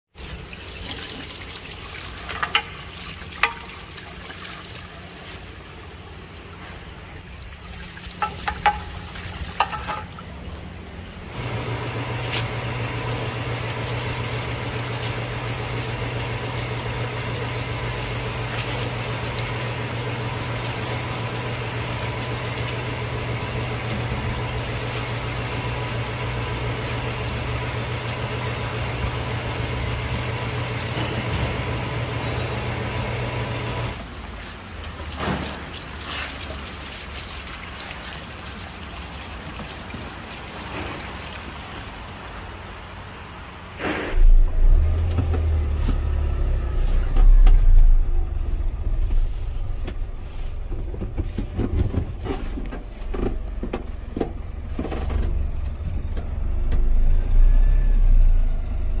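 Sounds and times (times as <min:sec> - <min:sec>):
water gushing and splashing: 0:00.1 - 0:54.9
pump motor humming: 0:00.2 - 0:59.0
metal clinks and knocks: 0:02.3 - 0:03.9, 0:08.2 - 0:10.3.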